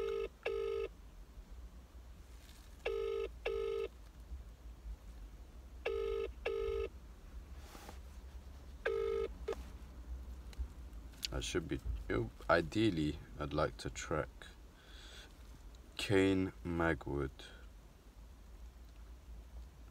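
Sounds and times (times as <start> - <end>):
telephone ringback tone: 0.0 - 0.9, 2.9 - 3.9, 5.9 - 6.9, 8.8 - 9.3.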